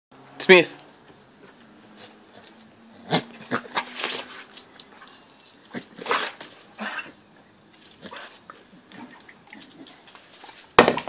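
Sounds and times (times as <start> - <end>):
dogs making short vocal noises: 2.0 - 7.2.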